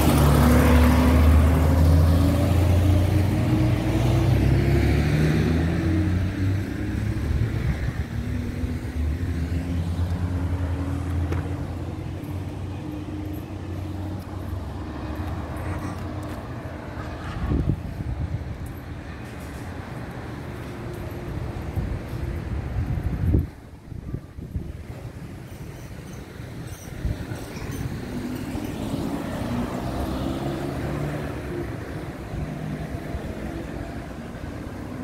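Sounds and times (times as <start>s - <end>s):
bus diesel engine accelerating: 0.0s - 16.9s, 26.3s - 35.0s.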